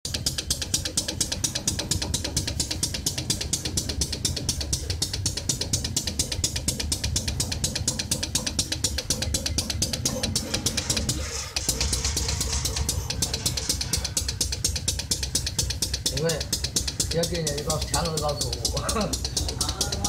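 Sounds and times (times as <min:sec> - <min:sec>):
low machine rumble: 0:00.1 - 0:20.0
machine clattering: 0:00.1 - 0:20.0.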